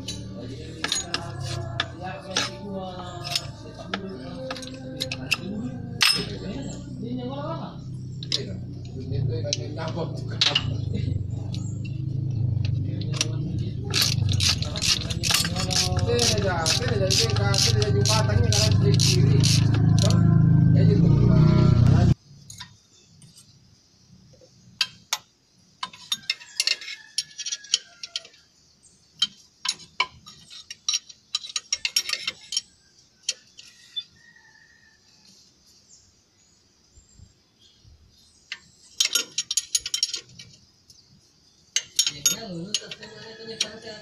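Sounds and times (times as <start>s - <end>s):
metal tools clicking: 0.0s - 6.6s, 13.1s - 20.2s, 24.8s - 28.4s, 29.2s - 33.7s, 38.5s - 40.6s, 41.7s - 43.9s.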